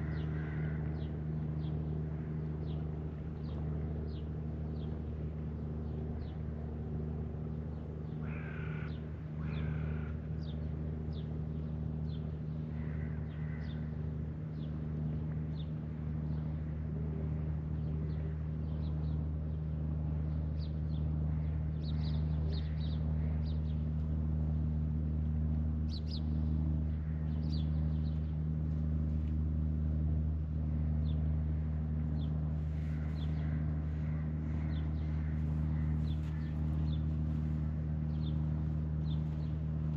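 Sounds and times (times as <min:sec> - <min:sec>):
low mechanical hum: 0:00.0 - 0:39.9
birds chirping: 0:32.2 - 0:39.9.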